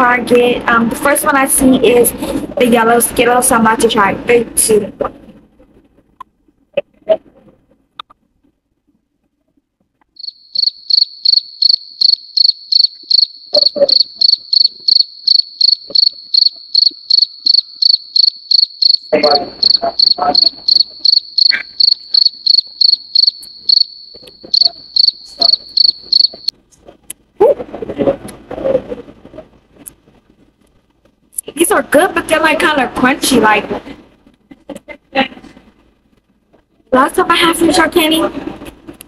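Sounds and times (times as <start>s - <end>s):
cricket chirping: 10.2s - 26.5s.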